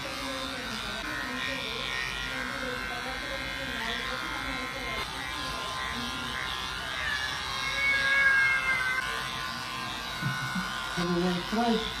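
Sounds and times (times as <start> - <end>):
electric pet clippers buzzing: 0.0 - 12.0
cat meowing: 7.0 - 9.2.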